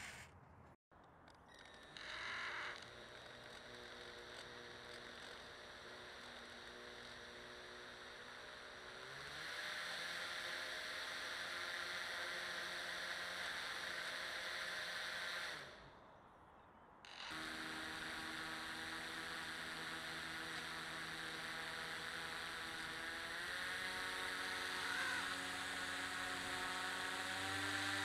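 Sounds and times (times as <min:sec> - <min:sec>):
boat motor whirring: 0:17.2 - 0:28.0.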